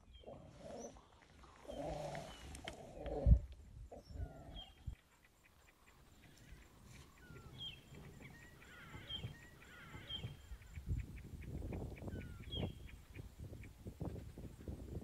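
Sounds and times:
high chirping calls: 0:03.9 - 0:13.8.

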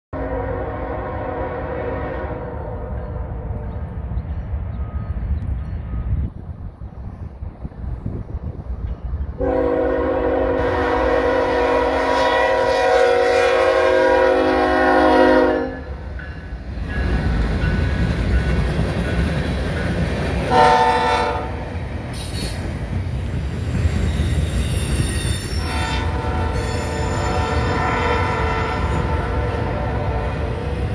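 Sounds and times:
locomotive air horn blasts: 0:00.2 - 0:03.6, 0:09.4 - 0:16.0, 0:20.5 - 0:21.6, 0:25.3 - 0:30.9
train engines and wheels rumbling: 0:00.2 - 0:30.9.

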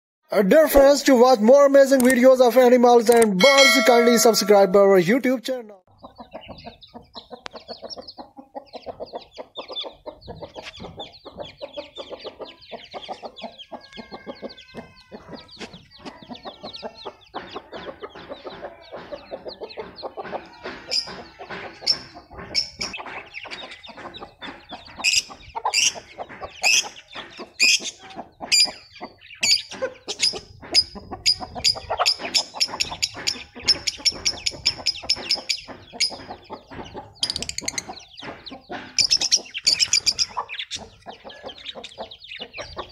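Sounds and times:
hen clucking: 0:03.4 - 0:05.1, 0:05.9 - 0:42.9
chicks peeping: 0:06.0 - 0:42.9.

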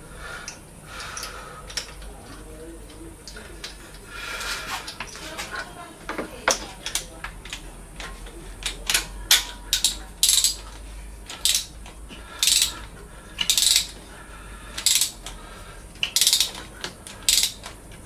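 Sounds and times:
ratchet wrench clicking: 0:01.2 - 0:02.0, 0:08.6 - 0:14.0, 0:14.7 - 0:15.4, 0:16.0 - 0:18.0.

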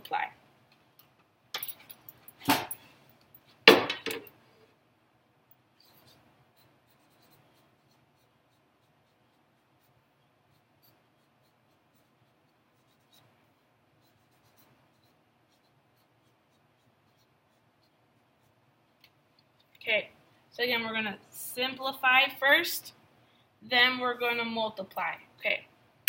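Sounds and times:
marker squeaking on paper: 0:05.8 - 0:18.6.

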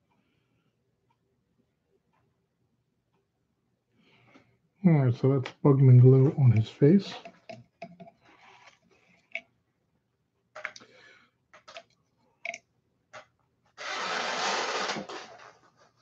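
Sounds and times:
small objects clicking on workbench: 0:10.6 - 0:10.9.

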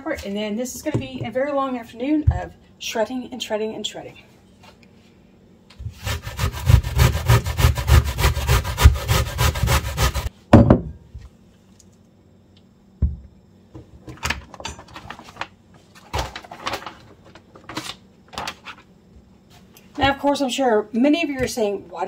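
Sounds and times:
vegetable scraping on grater: 0:05.9 - 0:10.3
knock: 0:10.5 - 0:10.9.

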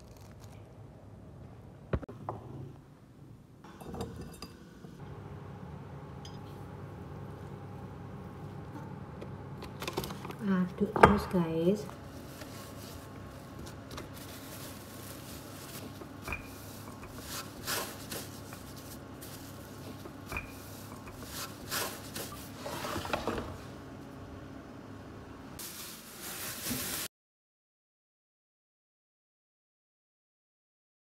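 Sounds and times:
dough rolled with rolling pin: 0:15.1 - 0:23.5.

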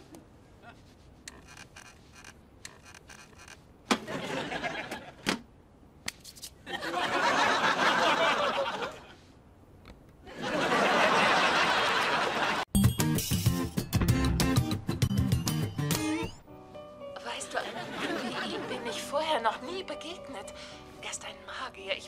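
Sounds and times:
studio audience laughing: 0:04.0 - 0:05.3, 0:06.7 - 0:09.2, 0:10.3 - 0:12.7, 0:17.6 - 0:18.8.

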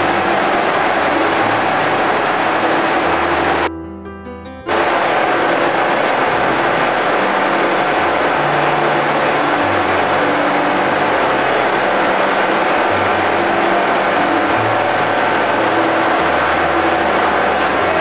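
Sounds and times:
engines and pump machinery running: 0:00.0 - 0:03.7, 0:04.7 - 0:18.0.

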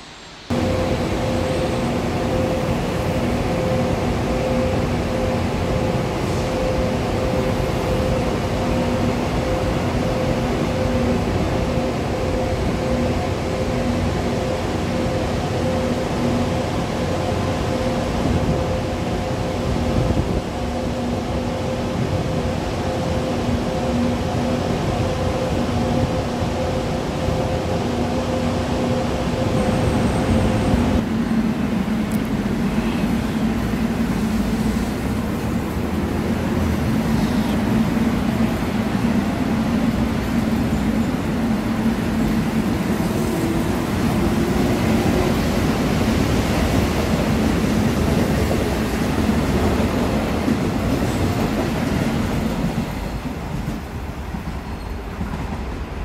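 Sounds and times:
electric train wheel rumble: 0:00.0 - 0:56.0.

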